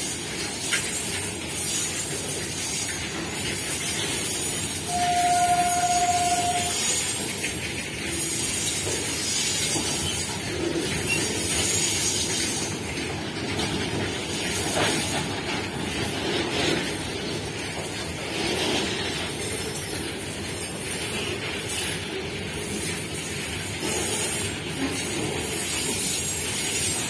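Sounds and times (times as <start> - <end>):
steel wheels rolling on rail: 0.0 - 27.0
short steady tone: 4.9 - 7.0.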